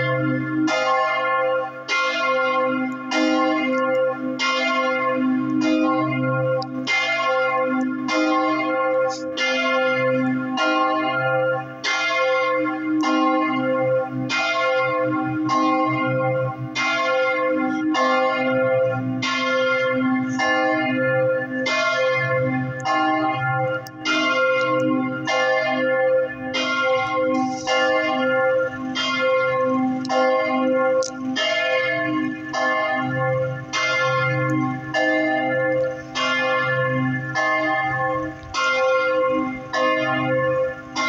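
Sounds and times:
church bells ringing: 0.0s - 41.0s.

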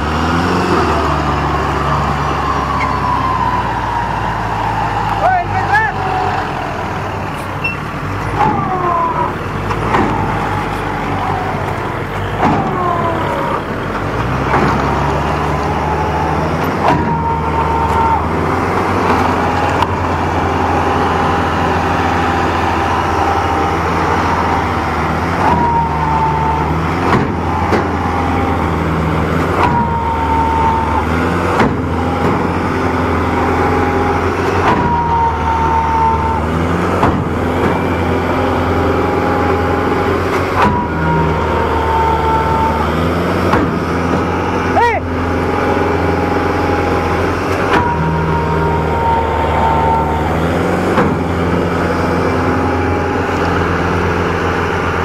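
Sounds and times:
tractor diesel engine straining: 0.0s - 55.0s
high-pitched falling squeals: 0.9s - 9.4s, 29.5s - 31.3s, 33.3s - 36.7s, 37.8s - 43.2s, 45.6s - 54.5s.

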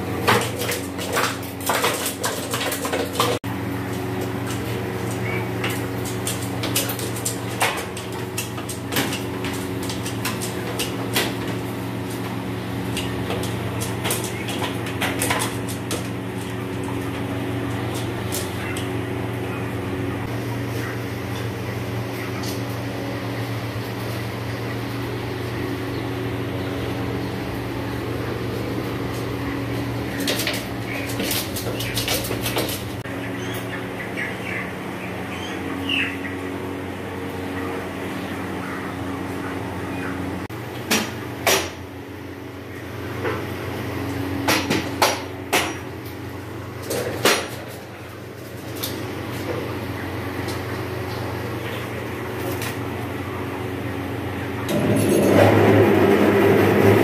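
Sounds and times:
chicken wings clattering against metal: 0.0s - 56.2s
low machine hum: 0.0s - 57.0s.

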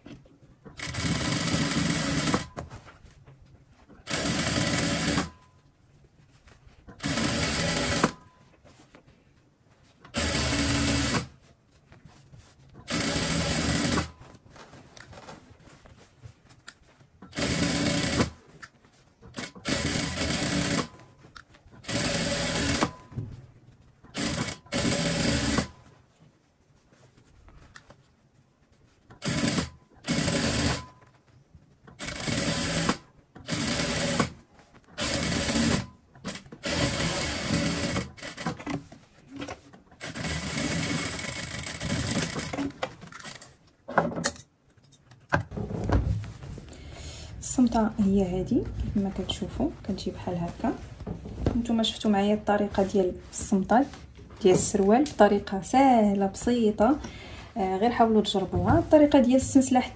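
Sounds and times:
electric sewing machine stitching: 0.8s - 2.5s, 4.0s - 5.4s, 7.0s - 8.2s, 10.1s - 11.3s, 12.8s - 14.2s, 17.3s - 18.4s, 19.3s - 21.0s, 21.8s - 23.0s, 24.1s - 25.7s, 29.2s - 30.9s, 32.0s - 34.4s, 35.0s - 38.6s, 40.0s - 43.4s.

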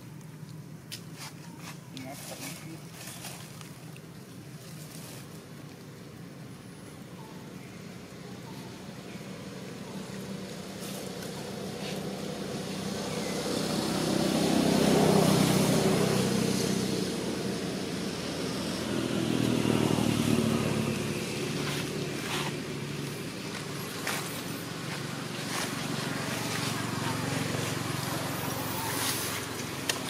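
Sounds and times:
vehicle engine passing by: 8.7s - 30.0s.

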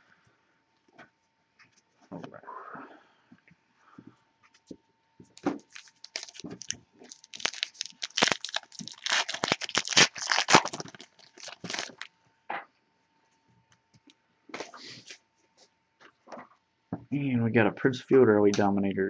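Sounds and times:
cards being handled: 5.4s - 12.1s
wrapper tearing and crinkling: 5.6s - 12.1s.

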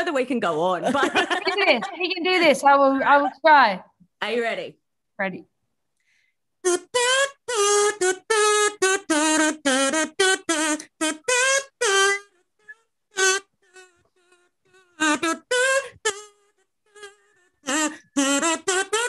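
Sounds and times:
kazoo playing melody: 6.6s - 19.0s.

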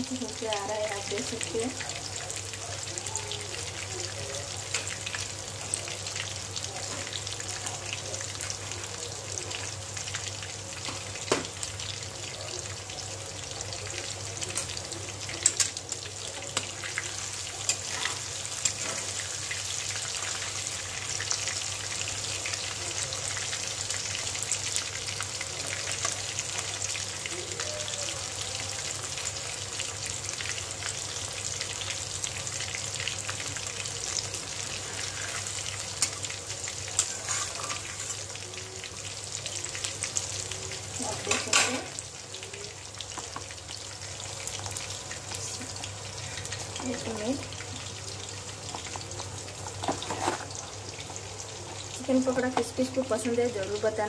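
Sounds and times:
food deep-frying in hot oil: 0.0s - 54.0s
metal spatula stirring in pan: 16.9s - 19.2s, 34.8s - 36.2s, 37.0s - 38.3s.

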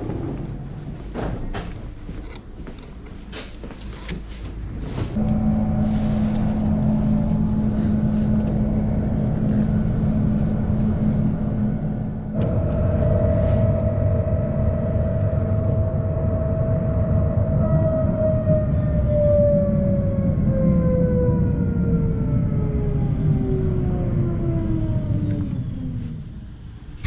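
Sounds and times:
tram rumbling on track: 0.0s - 27.0s
traction motor whine: 5.2s - 18.3s.

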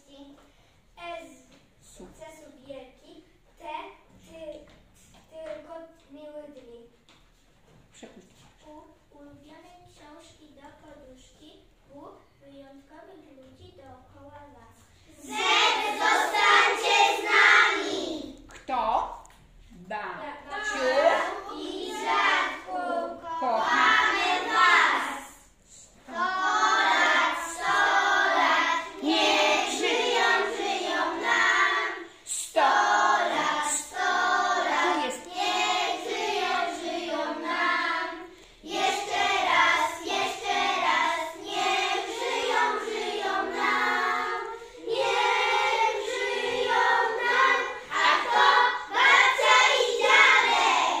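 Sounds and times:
children singing in unison: 15.2s - 18.3s, 20.5s - 51.0s.

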